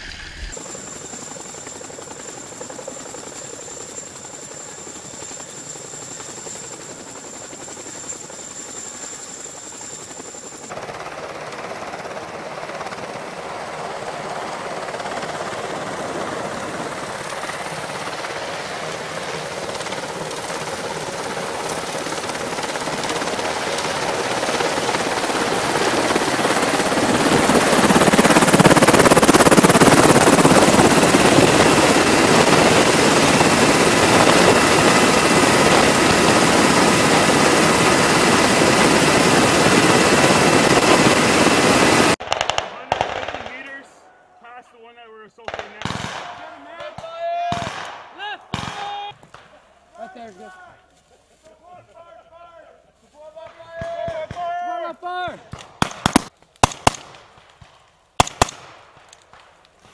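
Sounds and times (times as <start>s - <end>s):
rush of rotor noise: 0.0s - 4.0s, 7.5s - 42.2s
helicopter rotor and engine whine: 0.0s - 42.2s.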